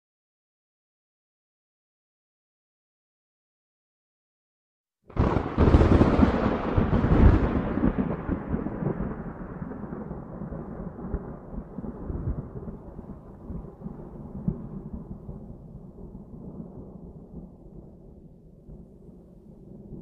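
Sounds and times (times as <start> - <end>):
rain: 5.1 - 20.0
thunder rumble: 5.1 - 20.0.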